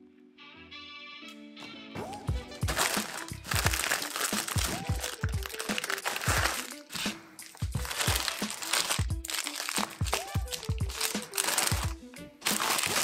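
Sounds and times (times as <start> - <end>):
background music with steady beat: 1.0 - 13.0
plastic packaging crinkling and tearing: 2.6 - 13.0.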